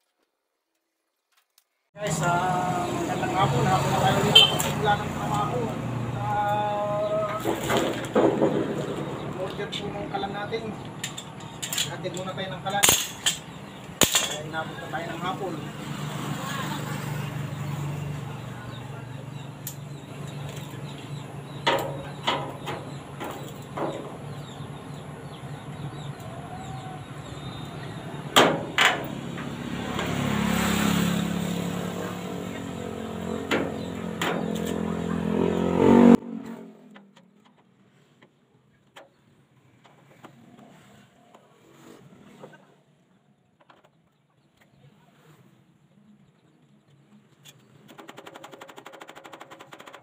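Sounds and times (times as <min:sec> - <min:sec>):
metal clanks and clicks: 0:10.9 - 0:14.5, 0:21.5 - 0:24.2.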